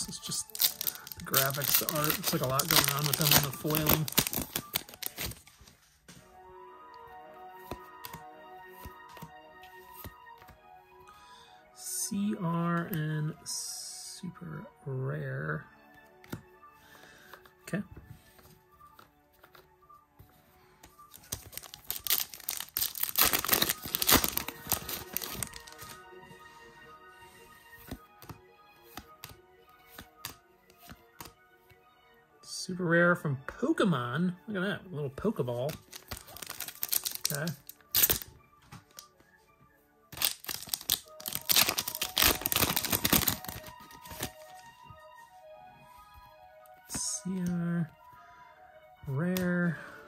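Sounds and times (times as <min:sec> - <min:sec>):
foil wrapper crinkling and tearing: 0:00.0 - 0:05.4, 0:21.1 - 0:26.0, 0:35.7 - 0:38.3, 0:40.1 - 0:44.6
soft background music: 0:00.0 - 0:50.0.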